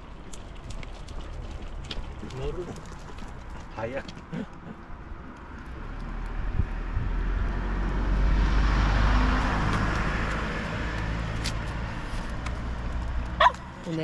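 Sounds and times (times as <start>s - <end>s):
vehicle driving past: 5.6s - 13.8s.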